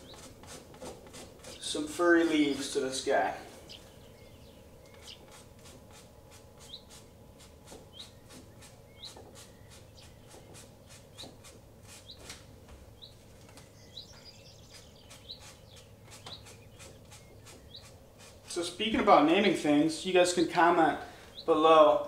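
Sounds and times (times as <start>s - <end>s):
bird chirping: 0.0s - 0.3s, 1.4s - 6.0s, 6.6s - 22.0s
low steady hum: 0.0s - 22.0s
paintbrush dabbing on canvas: 5.1s - 12.4s, 15.0s - 18.8s.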